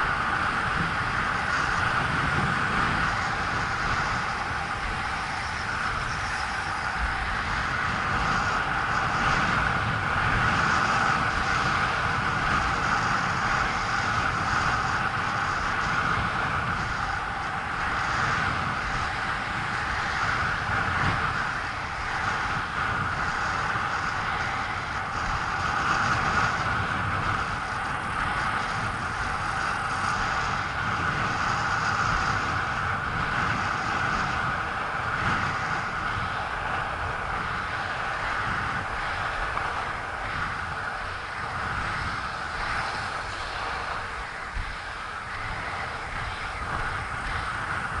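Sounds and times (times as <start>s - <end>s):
skate wheels rolling over asphalt: 0.0s - 48.0s
wind on microphone: 0.0s - 48.0s.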